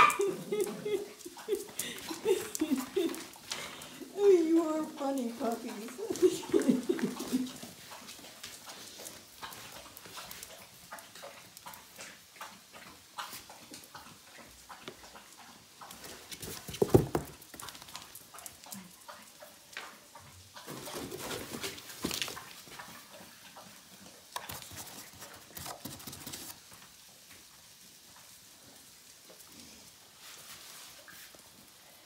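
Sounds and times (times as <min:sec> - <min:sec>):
cardboard rustling and knocking: 0:16.4 - 0:17.4.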